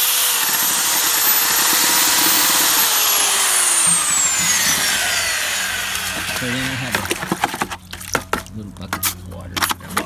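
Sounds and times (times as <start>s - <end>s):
drill motor whining: 0.0s - 7.0s
paddle mixer stirring mortar: 0.0s - 10.0s.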